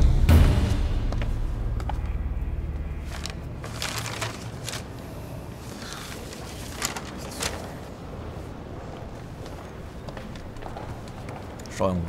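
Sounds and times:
low rumbling music drone: 0.0 - 5.4.

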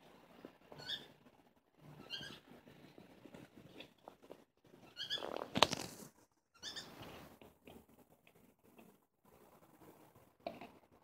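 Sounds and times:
high squeaky chirps: 0.8 - 1.2, 2.0 - 2.5, 4.8 - 5.4, 6.6 - 7.0.

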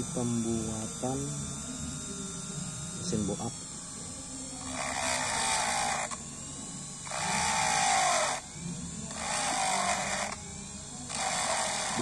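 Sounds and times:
rotary tool grinding metal: 4.5 - 12.0.

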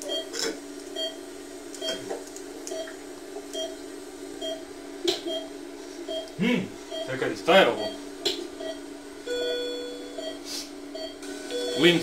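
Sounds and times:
heart monitor beeping: 0.0 - 0.3, 1.0 - 1.2, 1.8 - 2.1, 2.7 - 3.8, 4.4 - 5.5, 6.1 - 12.0
steady low hum: 0.0 - 12.0.

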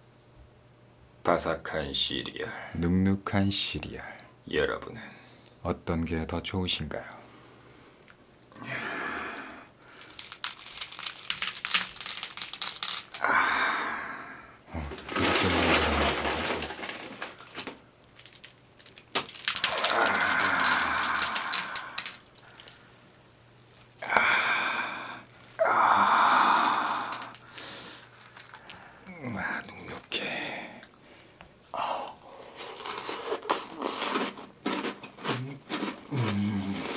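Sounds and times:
wet cereal squishing: 9.4 - 13.3, 14.8 - 31.2, 32.0 - 36.4
cereal crackling and crunching: 9.8 - 13.4, 14.7 - 36.5.

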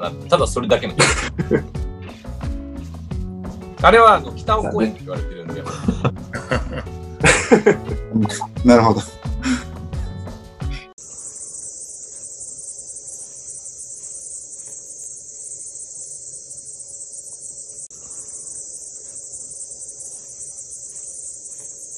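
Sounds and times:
high-pitched hissing chirr: 10.9 - 21.9.

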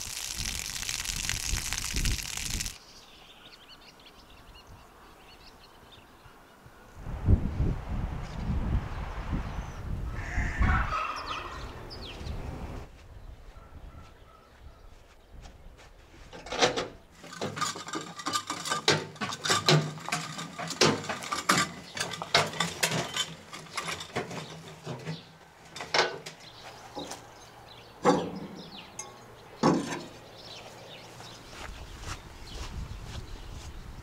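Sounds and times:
caster wheels rolling over grass: 0.0 - 2.8, 16.3 - 27.4
metal body rattling and clanking: 16.4 - 27.2.

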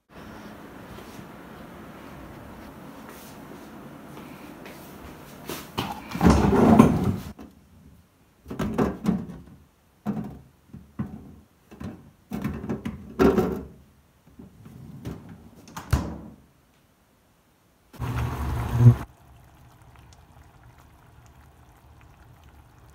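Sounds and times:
drawer sliding: 6.0 - 7.3.

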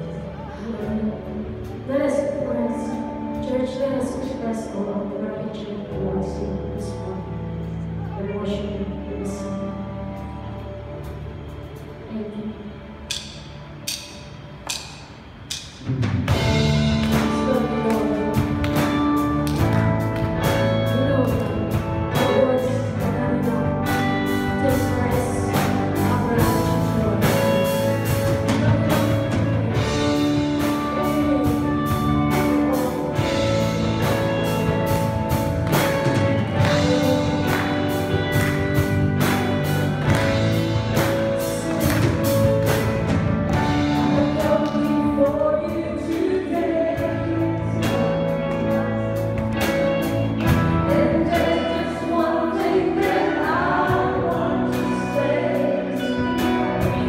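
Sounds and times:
sustained keyboard chords: 0.0 - 57.0
woman singing: 0.1 - 7.4, 17.1 - 19.8, 20.4 - 35.1, 35.9 - 38.9, 43.5 - 49.2, 50.4 - 57.0
guitar chords: 12.8 - 57.0
drum kit beat: 24.1 - 45.0.

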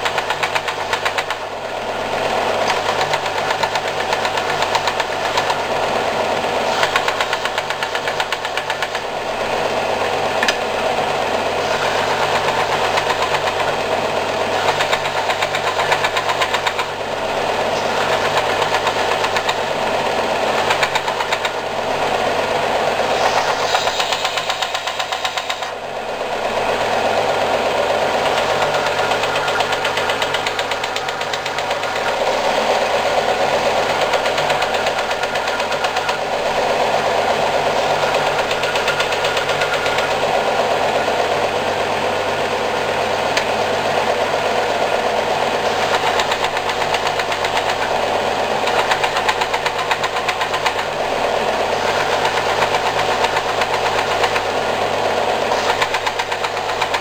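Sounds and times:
sander motor hum: 0.0 - 57.0
sandpaper hissing on wood: 23.0 - 25.6.

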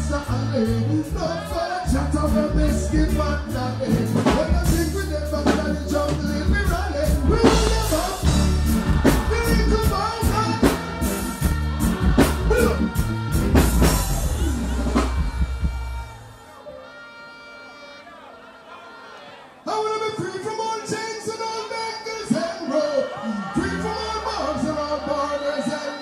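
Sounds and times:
man singing into a microphone: 0.0 - 11.4, 12.4 - 13.2, 19.6 - 26.0
live reggae music: 0.0 - 26.0.

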